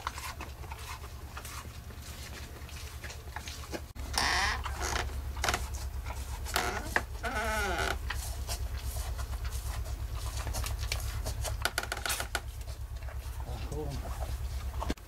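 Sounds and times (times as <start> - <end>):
steady low hum: 0.0 - 15.0
straw rustling: 0.0 - 15.0.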